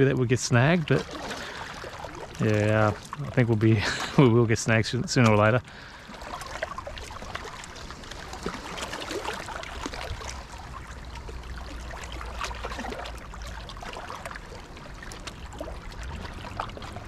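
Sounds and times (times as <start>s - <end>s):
small waves lapping on rocks: 0.0s - 17.0s.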